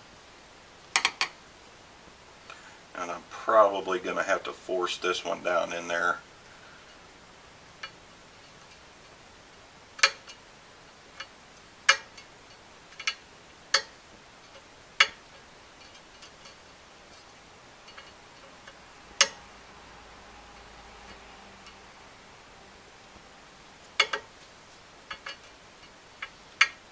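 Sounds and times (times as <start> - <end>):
screwdriver clicking on metal bearing: 24.0 - 24.3, 25.1 - 25.5.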